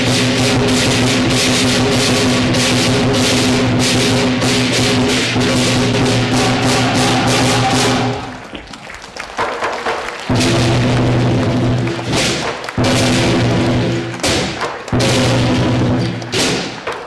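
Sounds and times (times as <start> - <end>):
drum gong and cymbal percussion: 0.0 - 8.3, 10.3 - 16.8.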